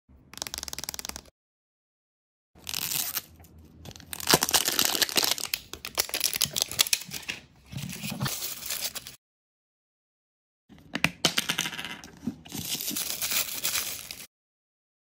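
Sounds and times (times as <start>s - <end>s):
plastic foil wrapper crinkling and tearing: 2.6s - 7.3s, 12.5s - 14.3s.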